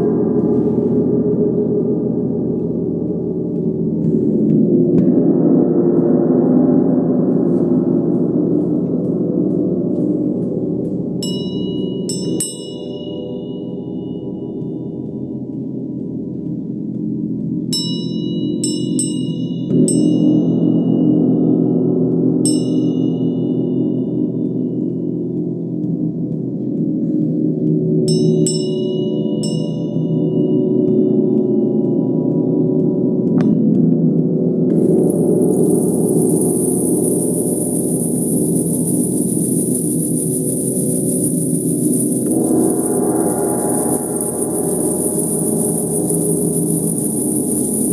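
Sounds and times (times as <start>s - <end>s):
gong drone: 0.0s - 47.9s
small hand bell ringing: 11.2s - 14.5s, 34.9s - 47.9s.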